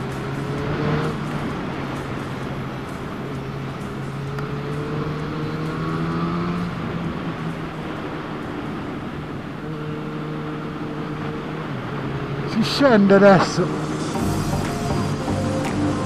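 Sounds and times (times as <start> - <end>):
motorcycle engine running: 0.0 - 12.5
constant rushing noise: 0.0 - 16.0.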